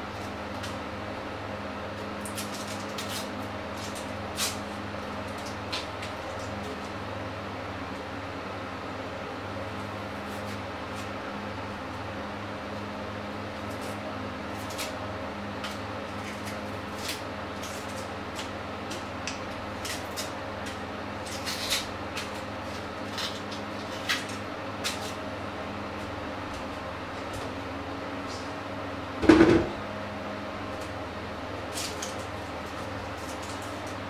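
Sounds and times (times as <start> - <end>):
loud knock: 29.2 - 29.8.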